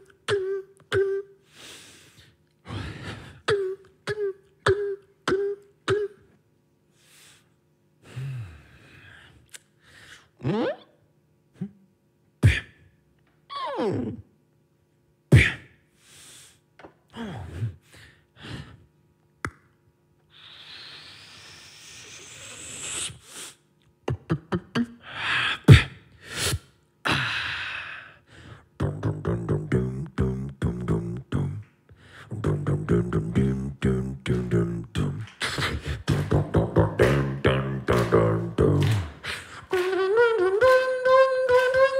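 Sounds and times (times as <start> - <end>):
beatboxing mouth clicks and pops: 9.4 - 9.7, 12.4 - 12.7, 19.4 - 19.8, 23.8 - 25.0, 32.4 - 41.9
fast beatboxed beat: 12.4 - 12.7, 15.3 - 15.7, 24.0 - 25.0, 25.6 - 26.6, 28.8 - 41.9
hummed bass line: 28.8 - 41.9.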